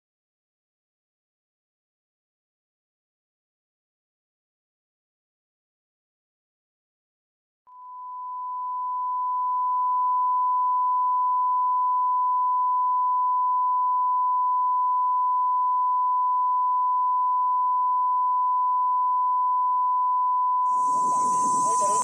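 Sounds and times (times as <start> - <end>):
steady test tone: 20.7 - 22.0.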